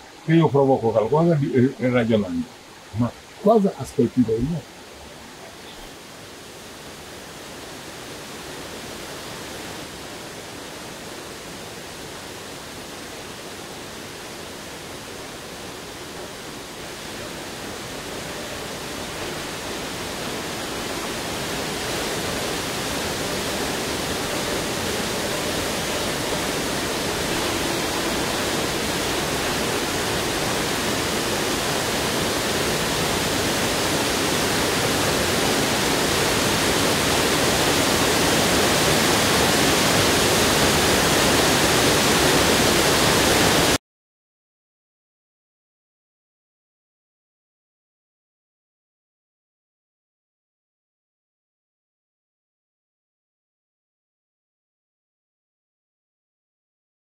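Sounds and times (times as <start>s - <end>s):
waterfall rushing splash: 6.0s - 43.8s.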